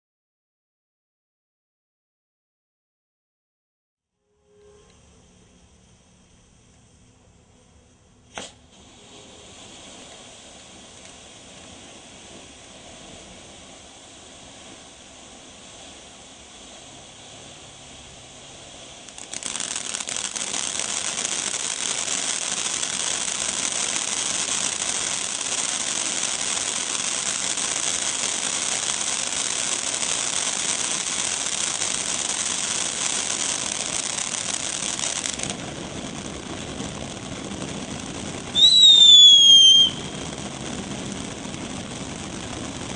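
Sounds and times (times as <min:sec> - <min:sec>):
firework fountain hissing and crackling: 0:04.3 - 0:42.9
firework igniting pop: 0:08.2 - 0:14.6, 0:19.0 - 0:42.9.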